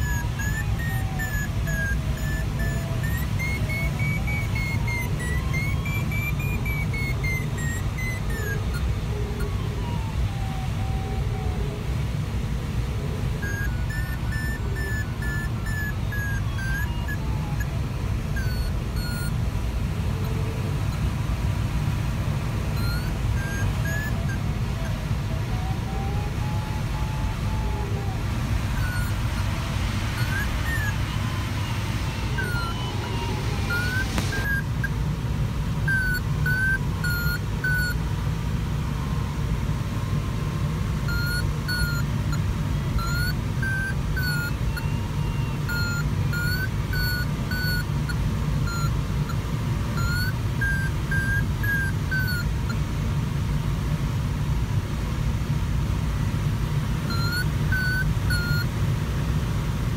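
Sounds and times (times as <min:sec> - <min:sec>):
variometer beeping high chirps: 0:00.0 - 0:11.2, 0:13.2 - 0:21.1, 0:22.3 - 0:35.1, 0:35.8 - 0:38.0, 0:41.0 - 0:52.8, 0:57.1 - 0:58.7.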